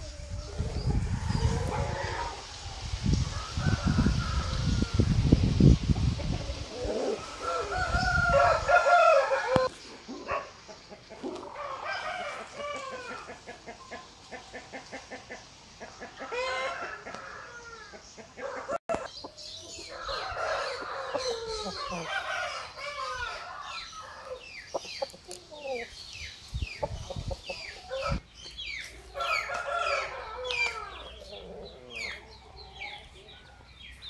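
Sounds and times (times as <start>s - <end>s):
rooster crowing: 3.3s - 5.2s, 7.0s - 9.7s, 11.5s - 13.3s, 19.9s - 24.4s, 29.1s - 32.1s.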